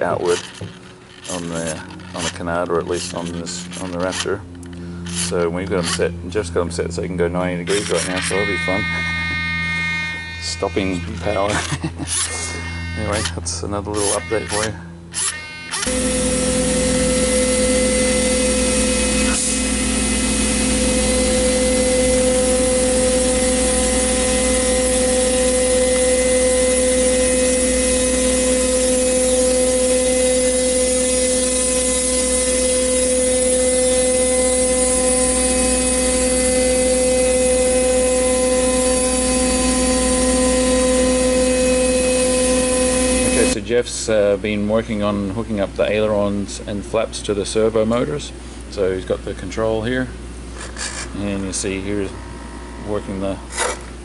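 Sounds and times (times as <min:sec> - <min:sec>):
router spindle whining cutting foam: 0:00.0 - 0:06.1, 0:07.6 - 0:43.6.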